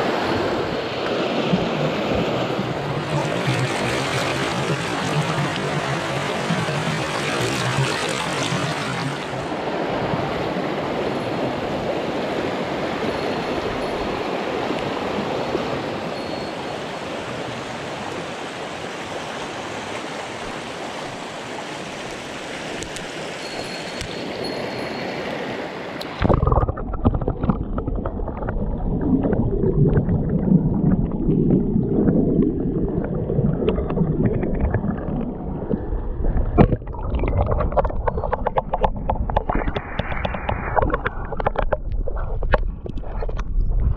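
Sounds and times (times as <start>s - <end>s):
underwater bubbling and gurgling: 0.0s - 16.2s, 26.0s - 43.9s
stream rushing over rocks: 0.0s - 29.0s, 36.6s - 43.4s.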